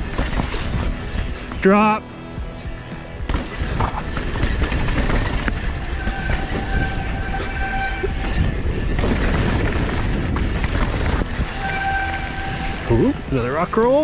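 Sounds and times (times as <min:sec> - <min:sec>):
chain and frame clatter: 0:00.0 - 0:01.6, 0:03.3 - 0:13.0
bike tyre rumble: 0:00.0 - 0:01.7, 0:03.1 - 0:14.0
wind buffeting microphone: 0:03.7 - 0:13.4.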